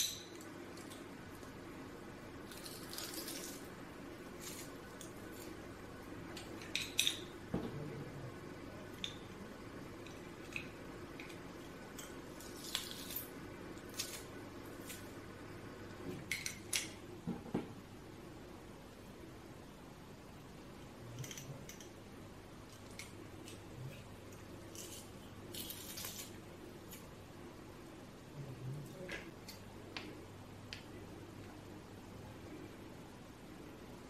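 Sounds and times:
low steady hum: 0.0s - 34.0s.

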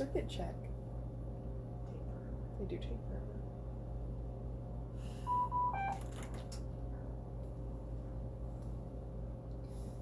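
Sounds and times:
low machine hum: 0.0s - 10.0s
ventilator short beeps: 5.2s - 6.1s
tones stepping down in pitch: 5.3s - 6.0s.

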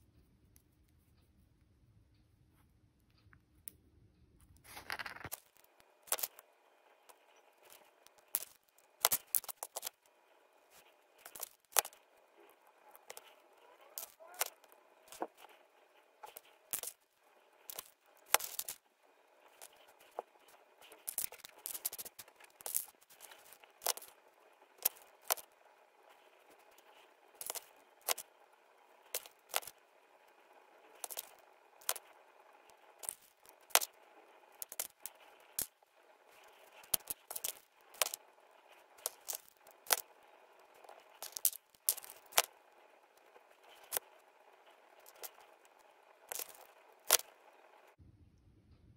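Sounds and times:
shells clicking and tapping: 4.7s - 10.0s, 19.4s - 24.2s, 29.0s - 47.9s.

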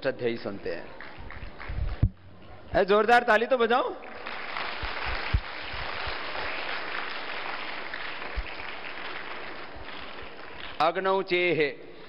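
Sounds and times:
audience applauding: 0.9s - 2.0s, 4.0s - 10.8s.

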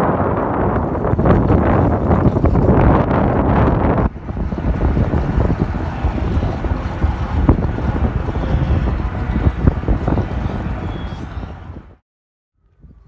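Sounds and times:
wind buffeting microphone: 0.0s - 12.0s, 12.6s - 13.0s.

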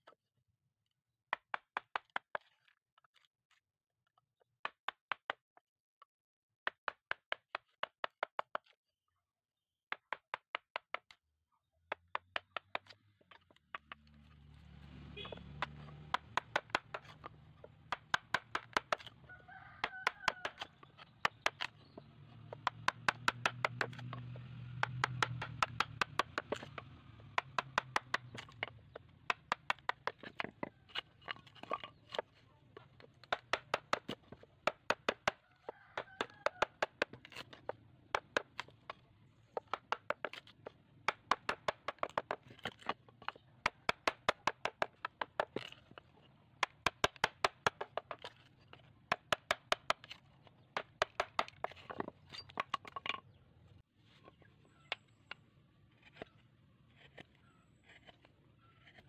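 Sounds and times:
blade chopping wood: 12.0s - 53.2s.

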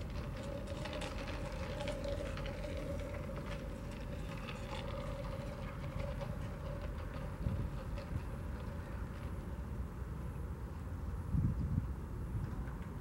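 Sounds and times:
train wheels clicking and rattling: 0.0s - 9.9s
train rumbling past: 0.0s - 13.0s.

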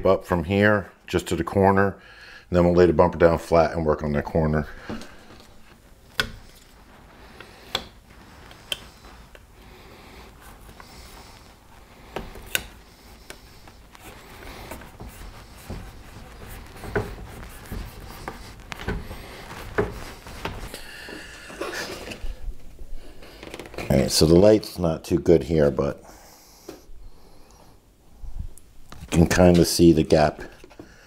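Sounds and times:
hands rubbing foil tape: 4.8s - 22.4s
tape crinkling: 4.9s - 23.9s.

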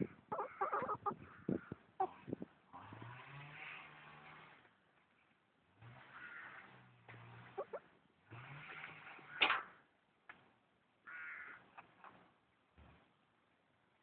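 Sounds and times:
hen squawking: 0.0s - 2.2s, 7.6s - 7.8s
hens clucking: 0.0s - 2.8s, 7.4s - 7.9s.

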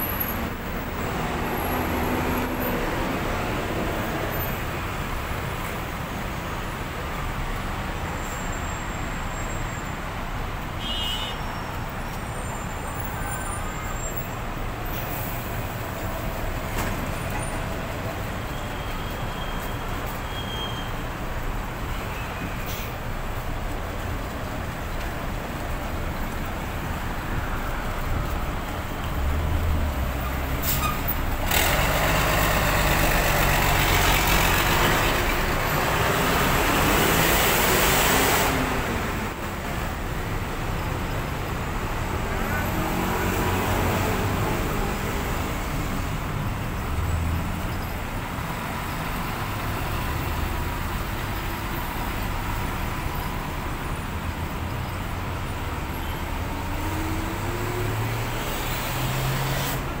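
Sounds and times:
cars passing: 0.0s - 8.1s, 20.9s - 60.0s
diesel buses running: 0.0s - 60.0s
engine revving up: 31.4s - 35.1s.

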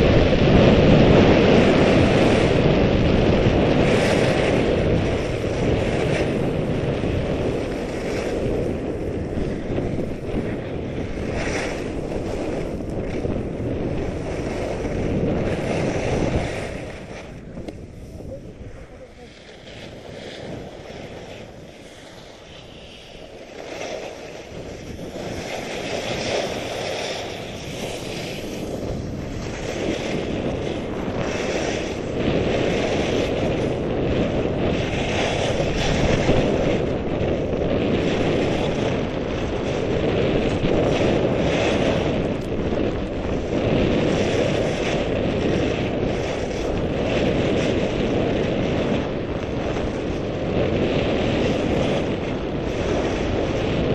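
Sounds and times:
skis scraping on snow: 0.0s - 53.9s
wind on microphone: 0.0s - 53.9s.

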